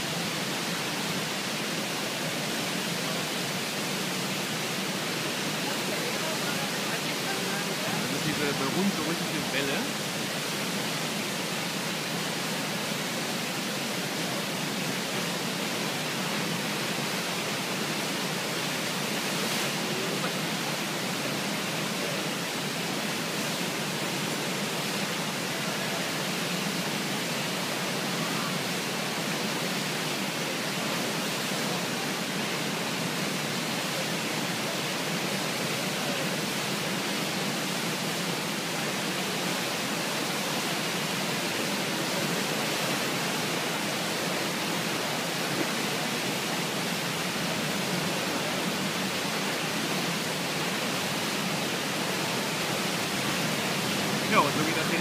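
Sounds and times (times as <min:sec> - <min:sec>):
churning whitewater rushing: 0:00.0 - 0:55.0.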